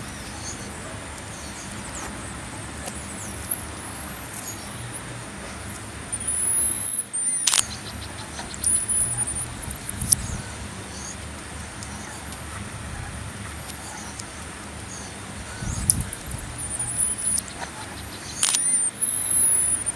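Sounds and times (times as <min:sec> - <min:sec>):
marmosets whistling calls: 0:00.0 - 0:19.9
quick run of ticks: 0:00.0 - 0:19.9
steady low rumble: 0:00.0 - 0:19.9
sharp click: 0:07.2 - 0:10.3, 0:15.8 - 0:19.9.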